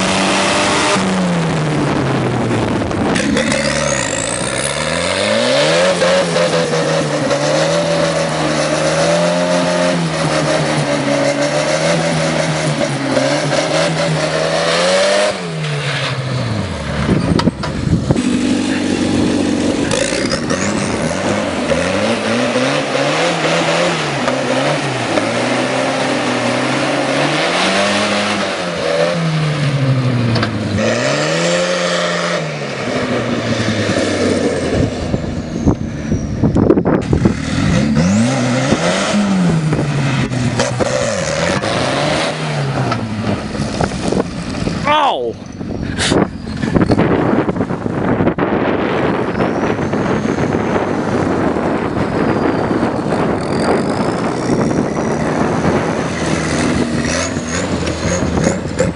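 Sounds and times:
tractor diesel engine running: 16.3 - 23.0.

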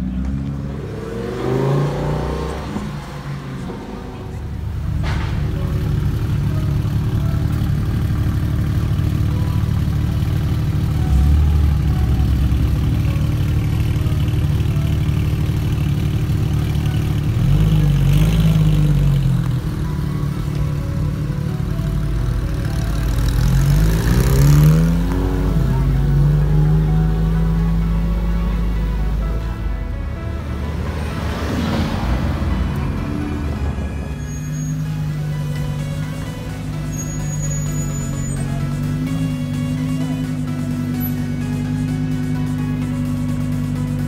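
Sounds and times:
engine revving: 0.0 - 6.2, 16.5 - 44.0
sports car engines droning: 0.0 - 44.0.

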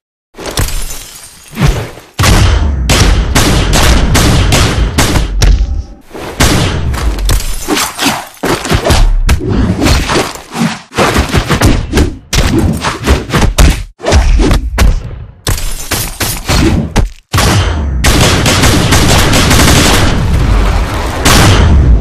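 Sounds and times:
hits slashes and thuds: 0.4 - 17.9.

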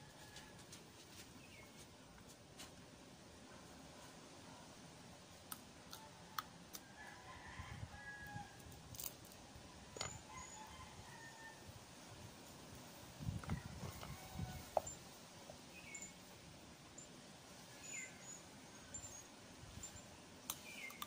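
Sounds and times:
rooster crowing faintly: 0.0 - 0.9, 5.9 - 8.7, 9.7 - 11.8, 13.2 - 15.0.

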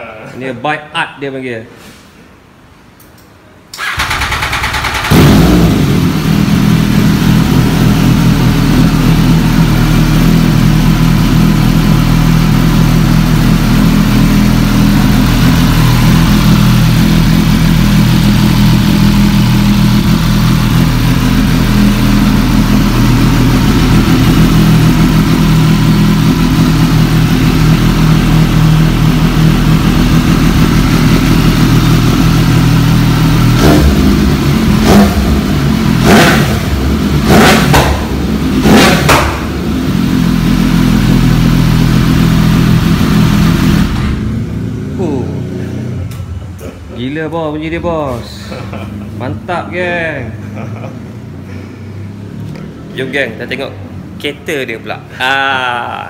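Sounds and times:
motorcycle engine starting and idling: 3.7 - 45.2.

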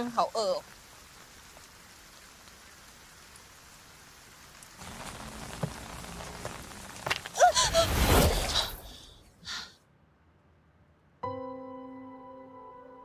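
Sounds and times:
rain falling: 0.0 - 9.2.

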